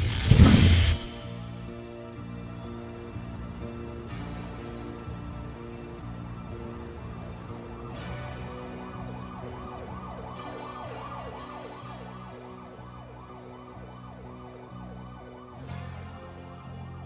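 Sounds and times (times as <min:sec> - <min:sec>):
wailing siren synth: 0:00.0 - 0:17.0.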